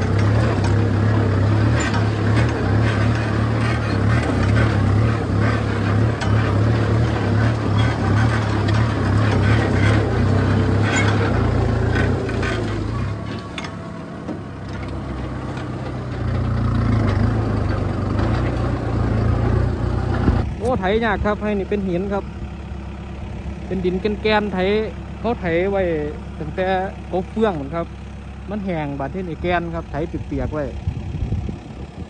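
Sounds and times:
plough knocking: 0:00.0 - 0:20.5
tractor diesel engine under load: 0:00.0 - 0:32.0.

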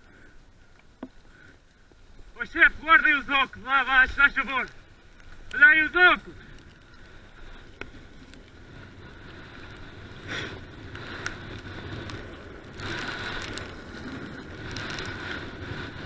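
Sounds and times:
tyres rolling over dirt and gravel: 0:01.9 - 0:16.0
bike clicks and rattles: 0:06.2 - 0:16.0.

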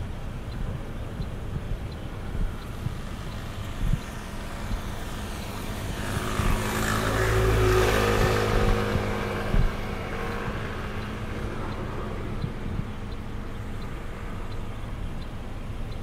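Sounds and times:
low wind rumble on microphone: 0:00.0 - 0:16.0
vehicle engine passing by: 0:03.2 - 0:14.5.

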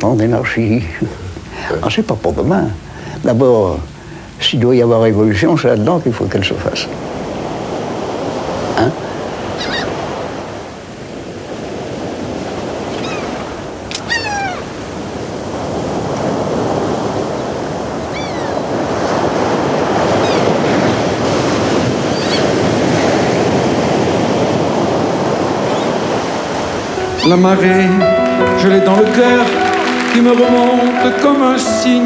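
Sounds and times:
surf breaking on rocks: 0:04.7 - 0:32.0
gull cries: 0:09.5 - 0:10.0, 0:13.0 - 0:14.7, 0:18.1 - 0:18.6, 0:20.2 - 0:20.6, 0:22.1 - 0:22.5.

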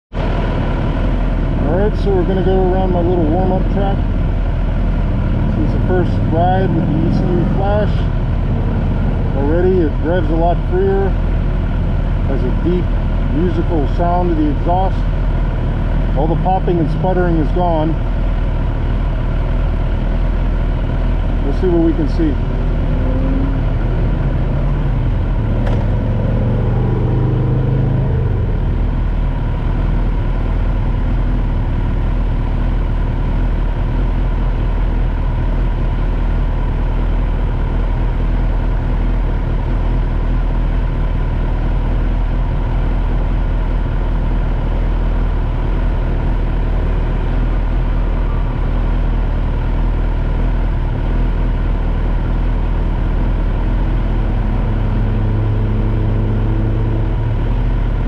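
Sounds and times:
motorcycle engine idling: 0:00.7 - 0:26.0, 0:28.6 - 0:54.9.

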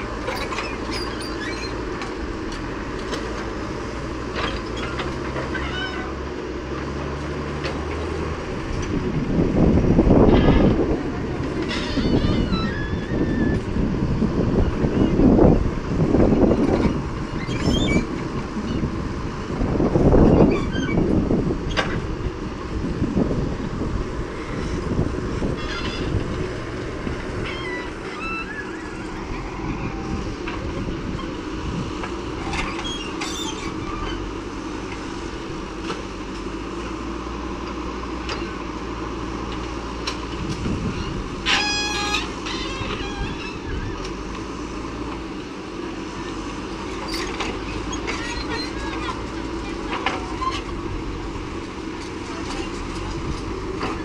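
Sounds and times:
diesel engine running: 0:00.0 - 0:54.0
tractor engines running: 0:00.0 - 0:54.0
rushing noise: 0:08.2 - 0:36.2.

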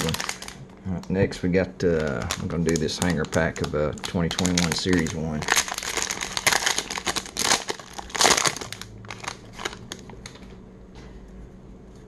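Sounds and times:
wrapper tearing: 0:00.0 - 0:00.6, 0:02.0 - 0:10.4
plastic wrapper crinkling: 0:00.0 - 0:01.2, 0:01.8 - 0:10.6.

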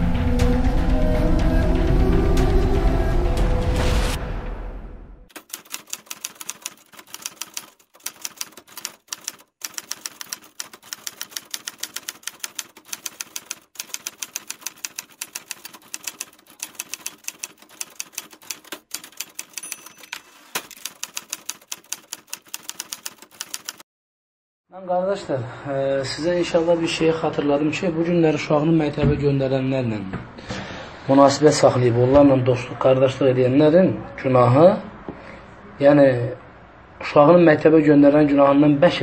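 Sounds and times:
typewriter keystroke clicks: 0:05.3 - 0:23.8.

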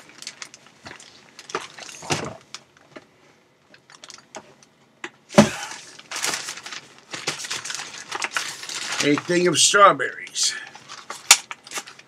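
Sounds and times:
plastic bag rustling: 0:00.0 - 0:02.9, 0:05.4 - 0:09.8, 0:10.7 - 0:12.0.

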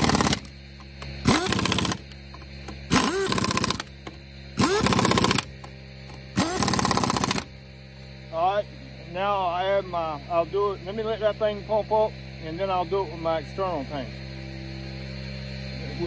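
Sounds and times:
air impact wrench hammering: 0:00.0 - 0:00.5, 0:01.2 - 0:07.5.

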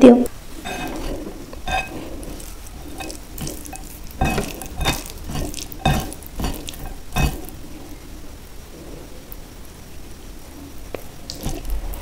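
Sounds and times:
wet squishing of rice stirred: 0:00.4 - 0:08.2, 0:11.0 - 0:12.0.

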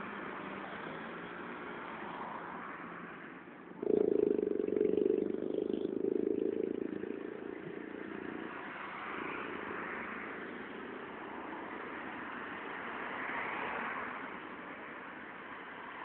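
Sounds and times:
tyre hiss of passing vehicles: 0:00.0 - 0:16.0
vehicle engine passing: 0:03.8 - 0:14.5.

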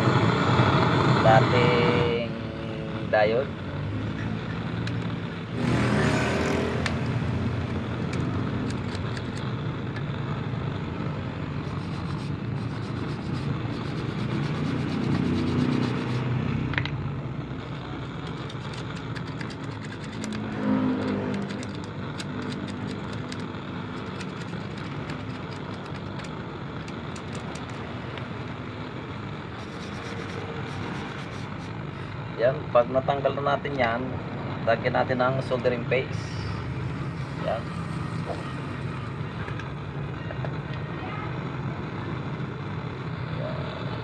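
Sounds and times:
blowtorch burning: 0:00.0 - 0:03.8, 0:04.5 - 0:32.3
wire brush scraping metal: 0:11.7 - 0:16.3
pliers clicking on metal: 0:18.3 - 0:20.4, 0:21.0 - 0:27.7.

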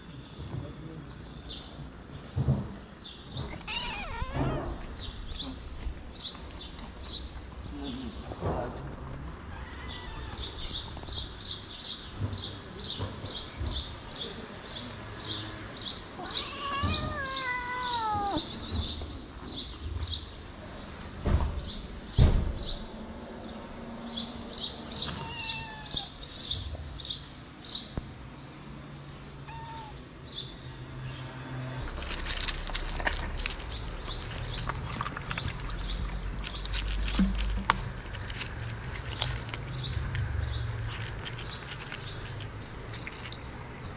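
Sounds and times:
kitten meowing: 0:03.5 - 0:04.9, 0:09.5 - 0:10.9, 0:16.2 - 0:18.8, 0:25.0 - 0:26.3, 0:29.4 - 0:30.0
cats crunching dry food: 0:31.8 - 0:43.9.

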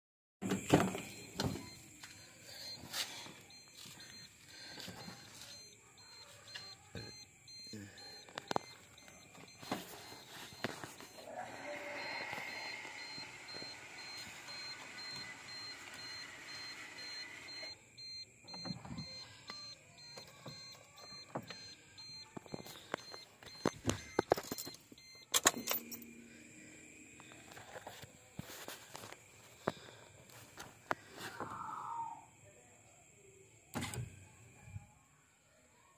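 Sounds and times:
faint high beep: 0:00.9 - 0:27.8
power window motor whirring: 0:09.0 - 0:17.8.

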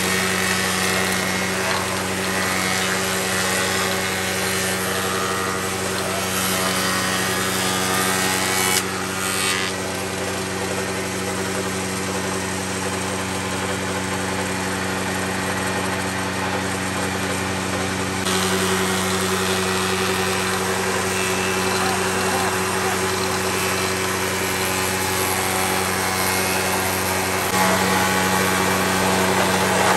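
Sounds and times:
motor hum: 0:00.0 - 0:29.9
cutter machining wood hiss: 0:18.3 - 0:29.9.

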